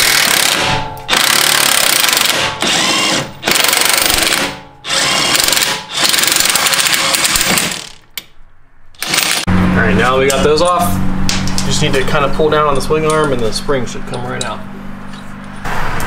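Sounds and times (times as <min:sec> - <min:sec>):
impact wrench hammering: 0:00.0 - 0:08.1, 0:09.0 - 0:09.5.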